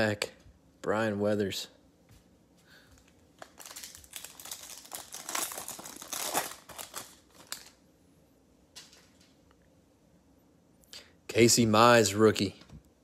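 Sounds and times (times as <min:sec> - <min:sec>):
foil wrapper crinkling and tearing: 0:03.4 - 0:07.8.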